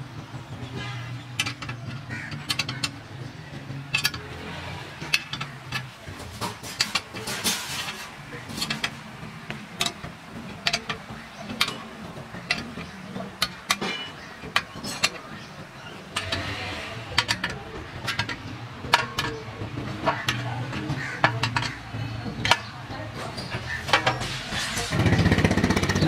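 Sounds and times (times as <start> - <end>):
clinks of steel tools handled: 5.0 - 25.0.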